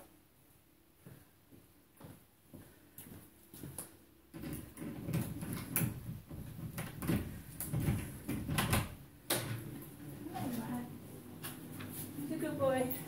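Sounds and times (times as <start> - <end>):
rustling and shuffling: 0.4 - 9.0, 9.6 - 13.0
sharp knocks and clicks: 4.4 - 9.6.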